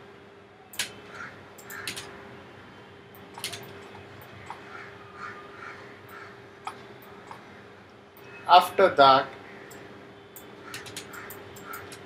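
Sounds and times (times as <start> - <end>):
low electrical hum: 0.0 - 12.0
computer mouse clicks: 1.6 - 2.1, 3.2 - 4.6, 6.6 - 7.4, 10.4 - 12.0
faint bird calls: 4.3 - 8.4.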